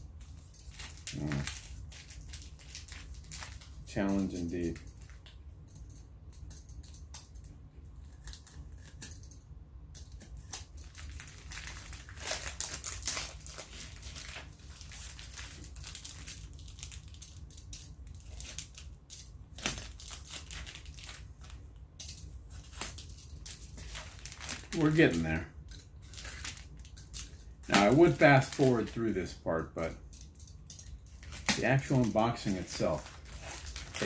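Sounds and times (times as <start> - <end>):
tape and cardboard crackling: 0.0 - 5.4, 10.0 - 34.0.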